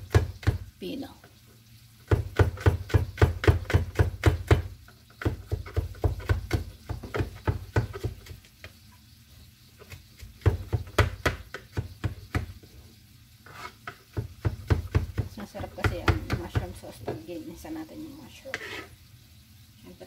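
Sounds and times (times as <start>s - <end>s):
knife chopping on cutting board: 2.1s - 8.4s, 9.8s - 12.6s, 13.5s - 17.2s.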